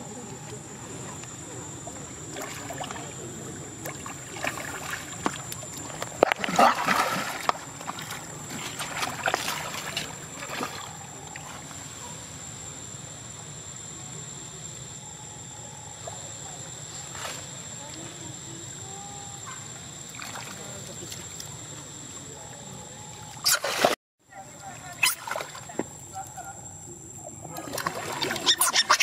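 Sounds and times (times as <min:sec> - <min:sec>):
water gently lapping: 0:00.0 - 0:13.6, 0:16.0 - 0:29.0
water splashing and sloshing: 0:00.1 - 0:12.8, 0:18.9 - 0:26.7, 0:27.4 - 0:29.0.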